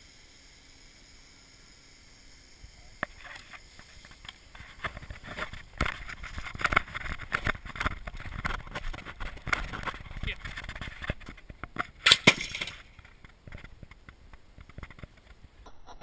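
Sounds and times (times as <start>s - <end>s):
handling knocks and rustling: 3.1s - 15.5s.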